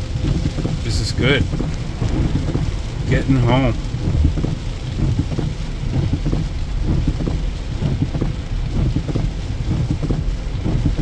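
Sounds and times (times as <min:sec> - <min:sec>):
heavy rain on vehicle roof: 0:00.0 - 0:11.0
road rumble: 0:00.0 - 0:11.0.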